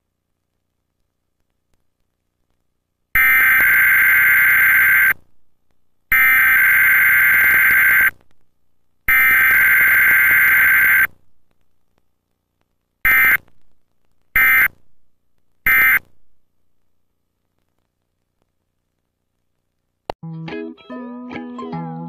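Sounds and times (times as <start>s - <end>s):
buzzing data bursts: 3.2s - 5.1s, 6.1s - 8.1s, 9.1s - 11.1s, 13.1s - 13.4s, 14.4s - 14.7s, 15.7s - 16.0s.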